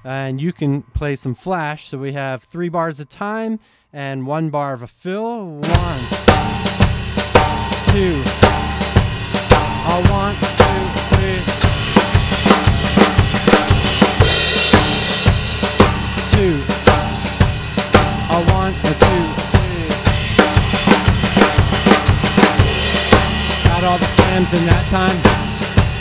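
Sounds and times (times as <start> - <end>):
bright cymbal wash: 5.6 - 26.0
drum kit groove: 5.6 - 26.0.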